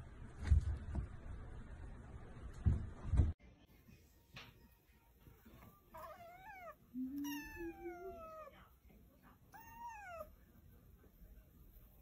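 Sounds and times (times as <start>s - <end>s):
kitten mewing: 6.0s - 8.5s.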